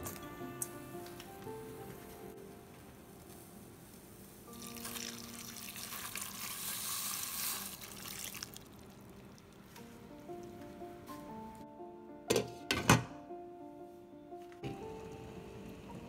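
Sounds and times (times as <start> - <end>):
water pouring into a pan: 4.5 - 9.5.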